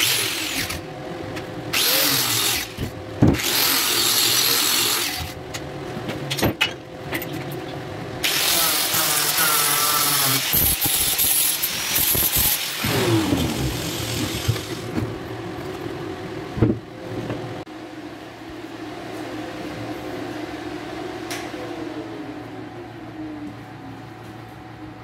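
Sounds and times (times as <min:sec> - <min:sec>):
steady machine hum: 0:00.0 - 0:25.0
angle grinder winding down: 0:01.8 - 0:02.8, 0:08.2 - 0:14.9.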